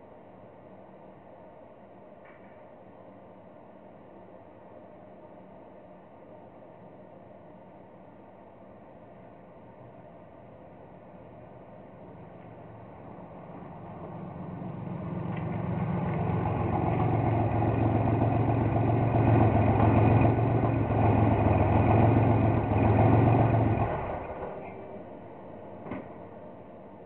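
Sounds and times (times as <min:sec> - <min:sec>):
car engine exhaust passing: 0:12.0 - 0:25.6.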